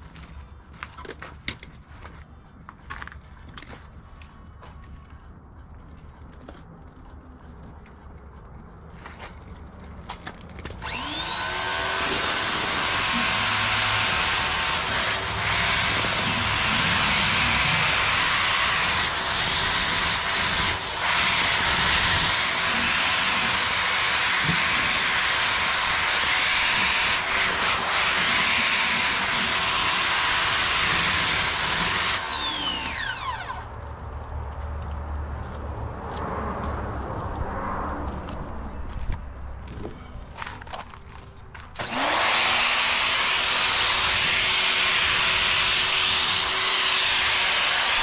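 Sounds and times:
pressure washer whine: 0:10.8 - 0:33.9, 0:41.8 - 0:48.0.

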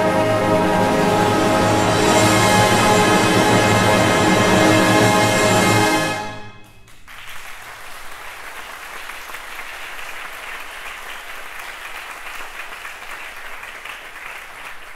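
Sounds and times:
audience applauding: 0:06.8 - 0:14.9.

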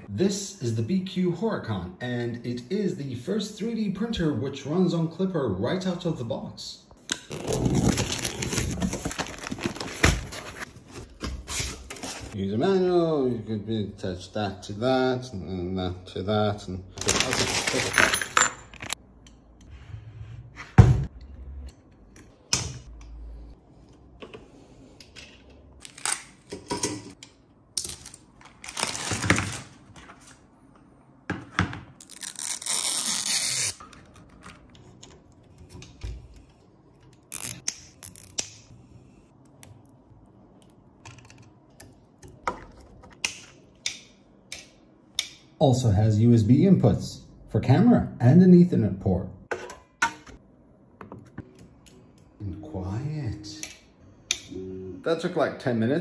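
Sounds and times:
plastic packaging rustling: 0:07.3 - 0:12.4, 0:17.0 - 0:19.0, 0:28.0 - 0:30.4.

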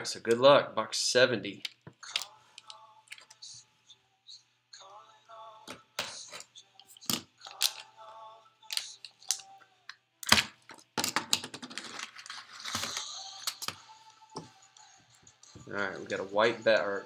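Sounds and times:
paper rustling: 0:11.7 - 0:13.6.

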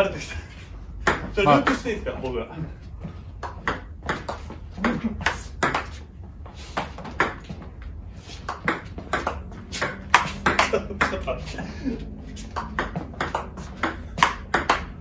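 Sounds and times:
ball bouncing on table: 0:01.0 - 0:01.8, 0:03.4 - 0:06.0, 0:06.8 - 0:07.6, 0:08.5 - 0:11.3, 0:12.5 - 0:15.0
ball clicking off bats: 0:03.4 - 0:06.1, 0:08.4 - 0:11.3, 0:12.5 - 0:15.0.

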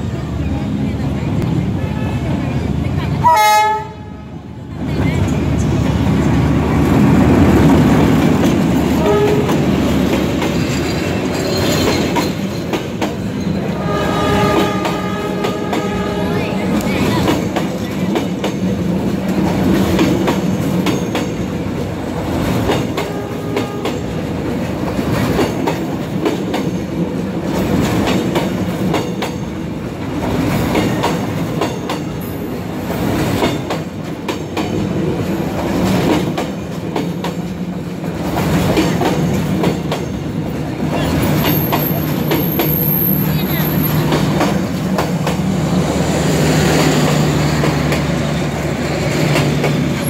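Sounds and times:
train rumbling past: 0:00.0 - 0:50.0
wheels clicking over rail joints: 0:14.5 - 0:45.5.

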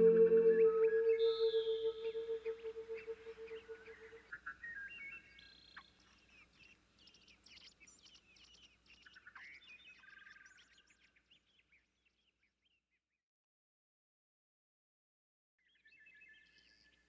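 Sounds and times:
warbled bird phrase: 0:00.0 - 0:04.2
songbirds chirping: 0:00.0 - 0:12.9, 0:15.6 - 0:17.0.

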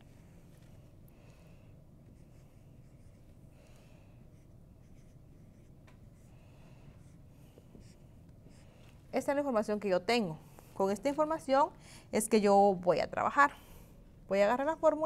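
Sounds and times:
low room hum: 0:00.0 - 0:15.0
marker writing on whiteboard: 0:04.3 - 0:05.8.

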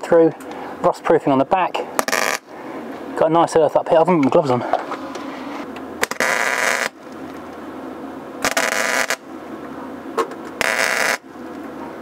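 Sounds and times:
welder crackling: 0:02.0 - 0:02.5, 0:06.0 - 0:07.6, 0:08.4 - 0:09.2, 0:10.6 - 0:11.6.

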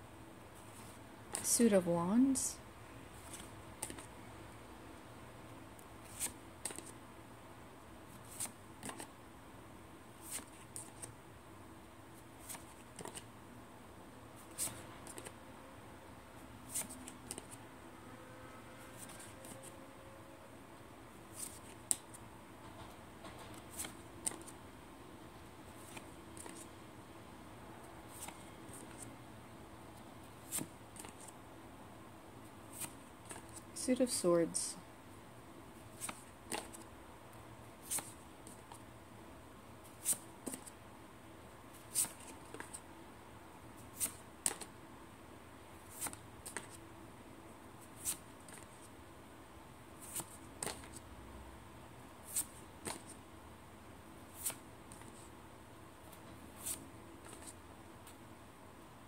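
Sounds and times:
paper cards swishing: 0:03.2 - 0:04.1, 0:06.0 - 0:07.0, 0:08.1 - 0:09.1, 0:10.2 - 0:11.1, 0:12.4 - 0:13.3, 0:14.4 - 0:15.4, 0:16.7 - 0:17.6, 0:21.3 - 0:22.2, 0:23.6 - 0:24.6, 0:28.1 - 0:29.1, 0:30.4 - 0:31.3, 0:32.7 - 0:33.6, 0:35.9 - 0:36.8, 0:37.8 - 0:38.8, 0:39.8 - 0:40.7, 0:41.8 - 0:42.8, 0:43.8 - 0:44.7, 0:45.8 - 0:46.8, 0:47.8 - 0:48.9, 0:50.0 - 0:51.0, 0:52.3 - 0:53.2, 0:54.3 - 0:55.3, 0:56.1 - 0:57.6.

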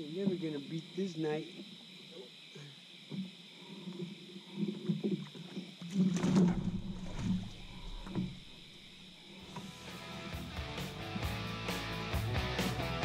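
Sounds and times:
crickets chirping: 0:00.0 - 0:13.0
knocks and thumps in a boat: 0:04.0 - 0:08.5.

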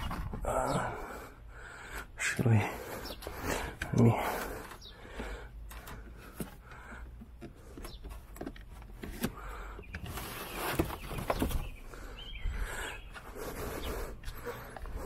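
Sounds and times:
handling knocks and rustling: 0:05.7 - 0:11.8.

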